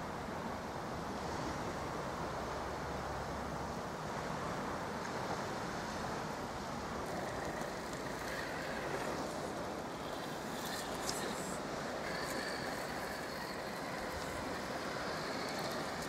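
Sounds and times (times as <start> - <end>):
wind: 0.0 - 16.0
waves rushing: 5.6 - 16.0.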